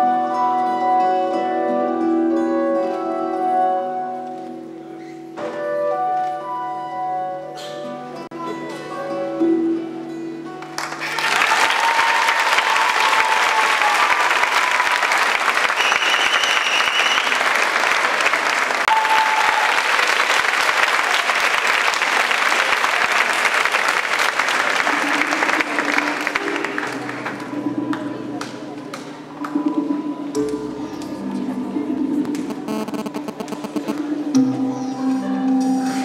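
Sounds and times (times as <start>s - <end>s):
audience applauding: 10.6s - 27.6s
music ending: 32.2s - 35.2s.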